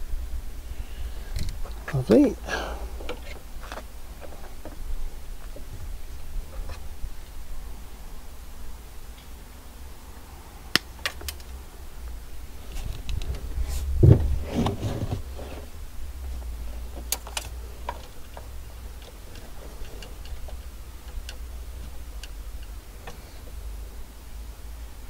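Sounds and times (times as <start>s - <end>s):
low steady rumble: 0.0s - 25.0s
knock and scuffle: 13.8s - 15.4s.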